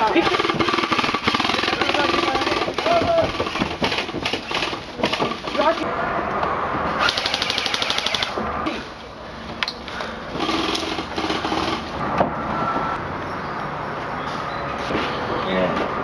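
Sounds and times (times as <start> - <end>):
airsoft rifle full-auto burst: 0.0 - 5.8, 7.0 - 8.4, 10.4 - 11.9.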